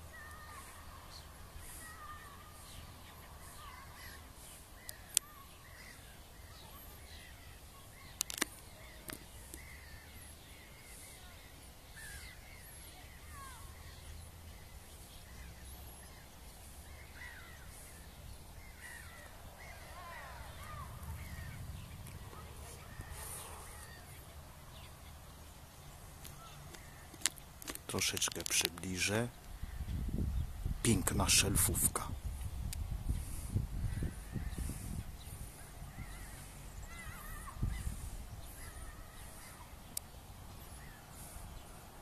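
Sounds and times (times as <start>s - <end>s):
birds chirping: 0.0s - 42.0s
sharp clicks: 8.1s - 9.7s.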